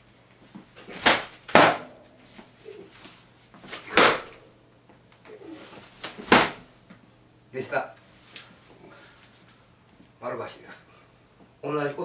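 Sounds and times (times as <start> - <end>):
practice swords striking: 0.9 - 2.2, 3.8 - 4.4, 6.1 - 6.6.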